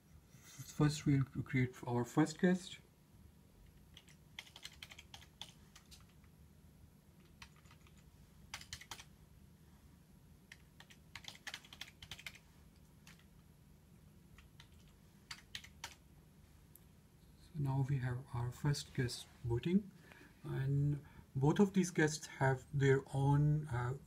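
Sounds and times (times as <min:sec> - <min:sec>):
low steady hum: 0:00.0 - 0:24.0
typing on computer keyboard: 0:03.7 - 0:06.2, 0:07.2 - 0:09.1, 0:10.5 - 0:12.4, 0:13.0 - 0:13.3, 0:14.4 - 0:16.0.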